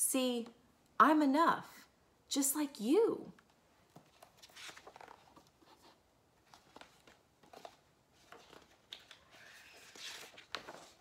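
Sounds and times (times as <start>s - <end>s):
paper pages rustling and turning: 3.9s - 11.0s.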